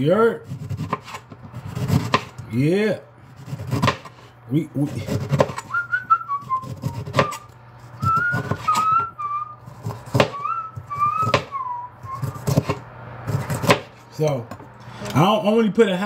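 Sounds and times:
man whistling a tune: 5.6 - 9.6, 10.2 - 12.6
knife knocking on cutting board: 10.1 - 10.4, 11.2 - 11.5.

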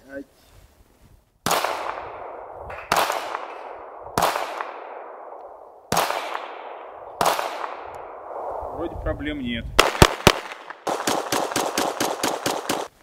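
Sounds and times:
pistol shots with ringing echo: 1.4 - 8.7, 9.8 - 12.9.

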